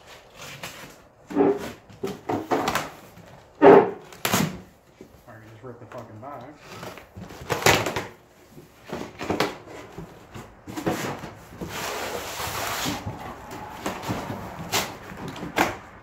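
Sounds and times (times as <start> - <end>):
cardboard tearing rasp: 0.0 - 3.2, 3.9 - 4.7, 6.6 - 8.2, 8.9 - 15.8
cardboard flaps rustling: 0.0 - 16.0
packing tape tearing: 4.0 - 4.7, 6.6 - 8.2.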